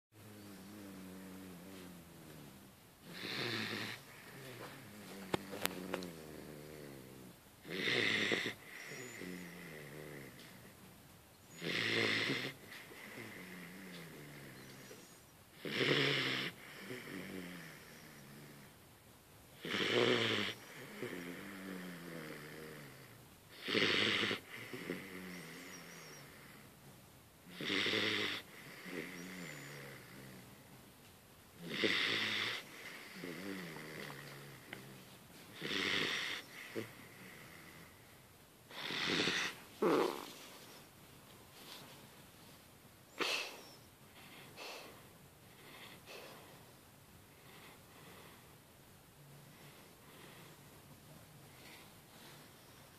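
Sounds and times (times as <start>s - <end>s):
puppy snoring: 0.2s - 10.8s, 11.4s - 18.8s, 19.6s - 26.8s, 27.4s - 30.8s, 31.5s - 40.9s, 43.1s - 48.6s, 49.4s - 50.8s
soft pitched breath sounds: 41.5s - 48.7s.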